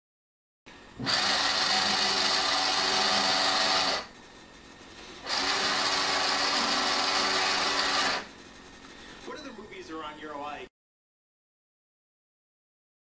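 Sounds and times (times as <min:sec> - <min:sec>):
geared motor winch whine: 0:01.0 - 0:09.4.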